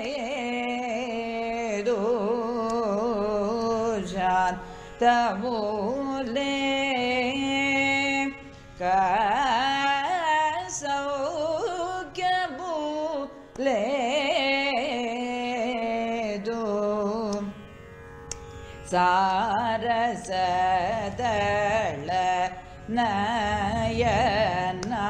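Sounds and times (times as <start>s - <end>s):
steady drone: 20.2s - 25.0s.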